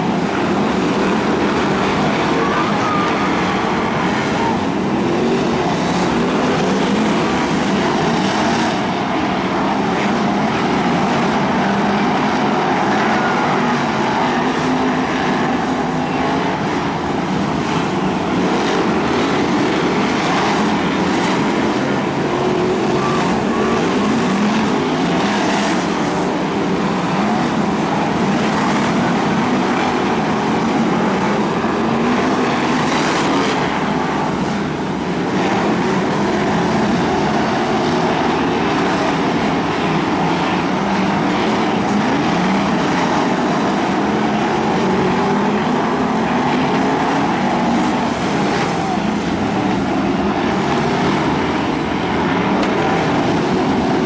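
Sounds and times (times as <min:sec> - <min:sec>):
racing car engines: 0:00.0 - 0:54.0.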